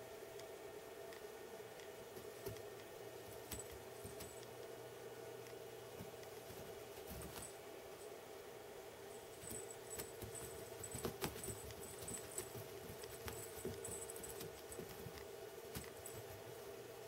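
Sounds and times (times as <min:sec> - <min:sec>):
cat paws pattering on carpet: 0:01.8 - 0:04.8, 0:05.4 - 0:07.6, 0:09.2 - 0:16.8
light clicks and jingles: 0:03.3 - 0:04.6, 0:09.2 - 0:16.6.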